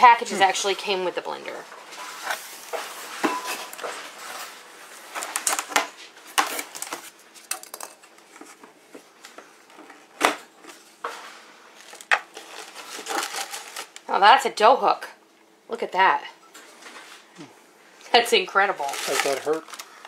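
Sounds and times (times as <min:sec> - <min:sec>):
packaging rustling: 0:02.0 - 0:10.8, 0:11.7 - 0:14.1, 0:18.8 - 0:20.0.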